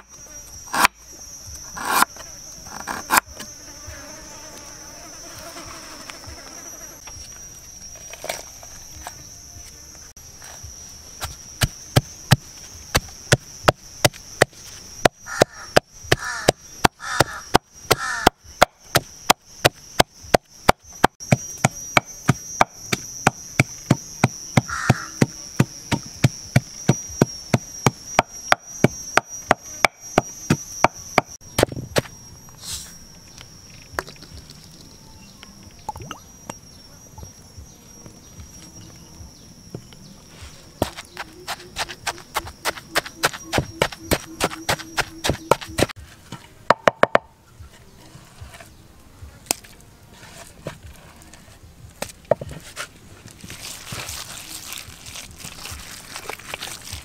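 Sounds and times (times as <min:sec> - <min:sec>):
high-pitched insect drone: 0:00.0 - 0:57.0
pestle pounding in wooden mortar: 0:11.2 - 0:31.7, 0:40.8 - 0:45.9, 0:46.7 - 0:47.3.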